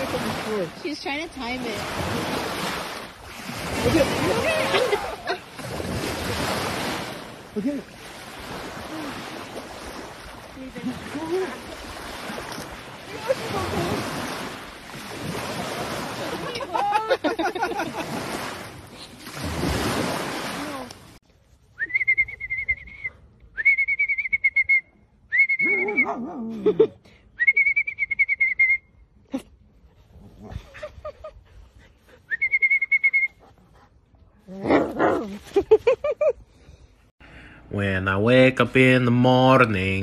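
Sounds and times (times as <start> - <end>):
small waves breaking: 0.0 - 21.2.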